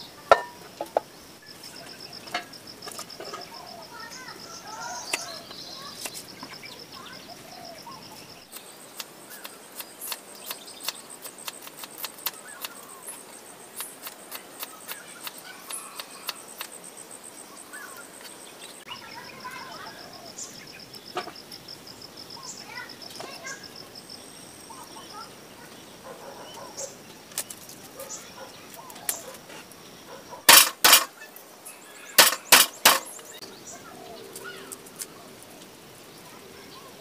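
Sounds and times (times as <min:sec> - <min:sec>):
birds chirping: 0:00.0 - 0:37.0
insect trilling: 0:00.0 - 0:37.0
sharp irregular clicks: 0:08.4 - 0:16.8.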